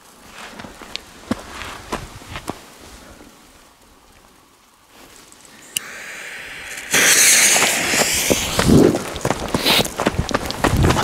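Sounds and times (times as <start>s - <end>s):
firework fuse hissing: 5.5s - 10.1s
sharp click: 5.7s - 9.9s.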